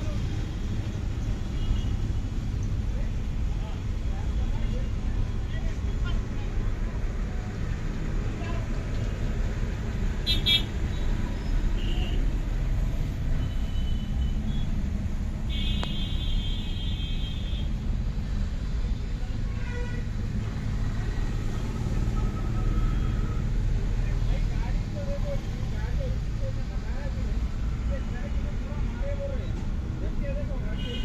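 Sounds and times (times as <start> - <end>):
low rumble of engines: 0.0 - 31.0
vehicle horns honking: 10.2 - 11.1, 15.5 - 17.7, 30.8 - 31.0.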